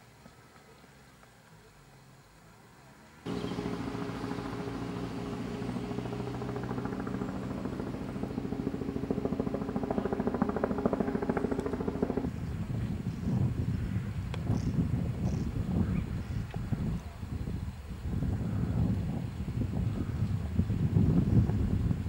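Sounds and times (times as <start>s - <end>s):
engine droning with rhythmic chop: 3.3s - 12.4s.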